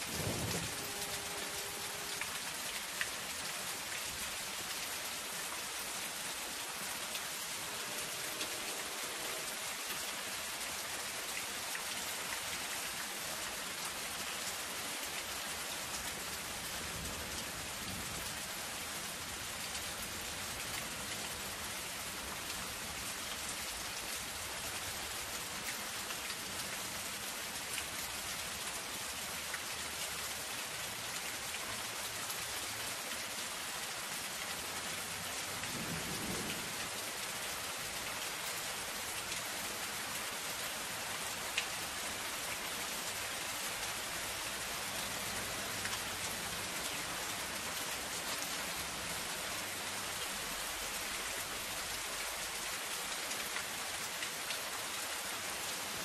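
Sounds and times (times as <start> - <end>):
rain on a metal roof: 0.0 - 56.0.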